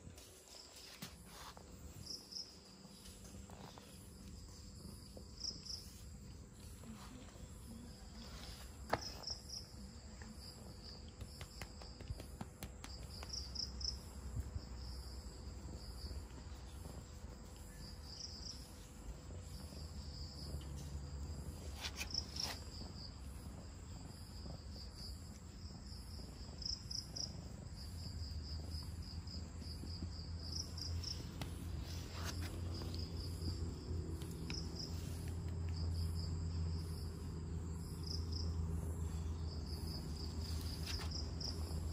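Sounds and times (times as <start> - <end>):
crickets chirping: 0.0 - 41.9
cat purring: 22.7 - 31.8.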